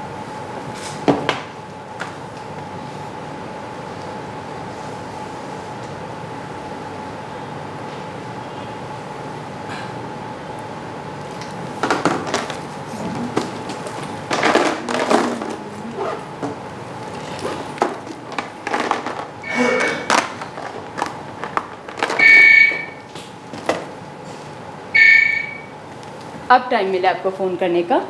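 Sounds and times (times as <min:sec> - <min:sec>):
rustling and knocks of handling: 0:11.3 - 0:19.4
mobile phone ringing: 0:22.2 - 0:23.0, 0:25.0 - 0:25.7.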